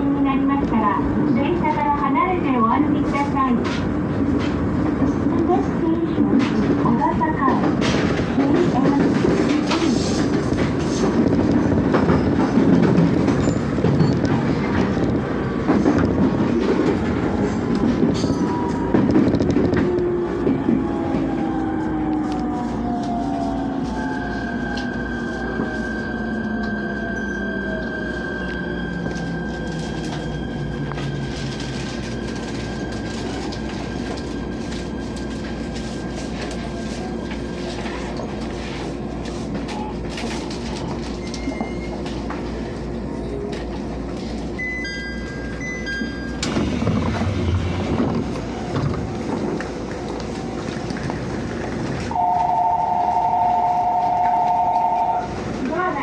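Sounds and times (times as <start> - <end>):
train door opening: 3.5 - 21.4, 43.4 - 55.7.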